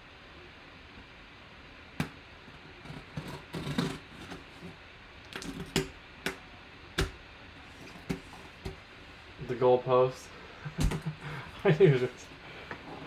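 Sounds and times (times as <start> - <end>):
knife cutting packing tape: 2.8 - 4.7.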